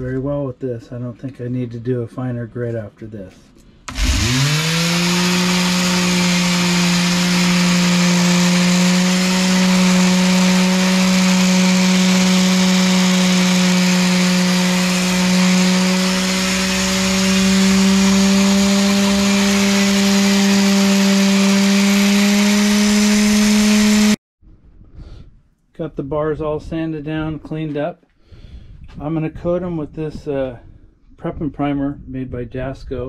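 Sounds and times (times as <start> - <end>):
palm sander motor hum: 3.9 - 24.2
sanding pad hissing on metal: 4.1 - 24.2.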